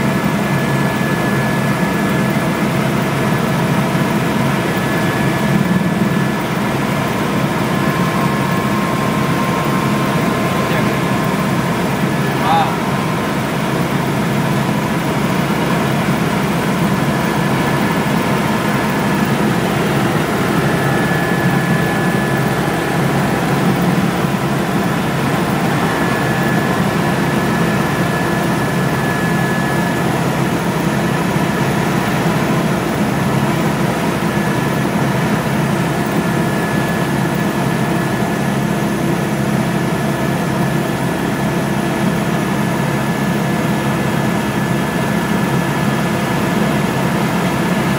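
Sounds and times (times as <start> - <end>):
helicopter engine and rotor drone: 0.0 - 47.9
thin high whine: 16.8 - 31.5.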